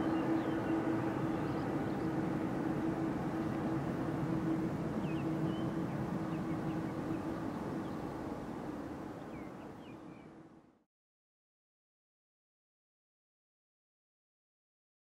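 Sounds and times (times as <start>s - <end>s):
distant jet engines rumbling: 0.0s - 9.8s.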